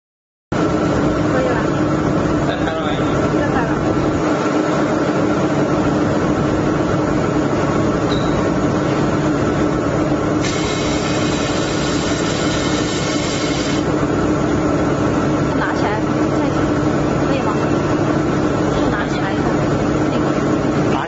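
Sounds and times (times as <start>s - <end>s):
laser welding machine humming: 8.5s - 15.6s
higher hiss: 10.4s - 13.9s.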